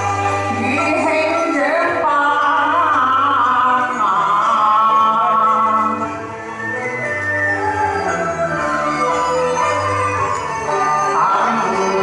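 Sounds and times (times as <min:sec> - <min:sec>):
instrumental accompaniment: 0:00.0 - 0:12.0
woman singing opera: 0:00.5 - 0:06.1.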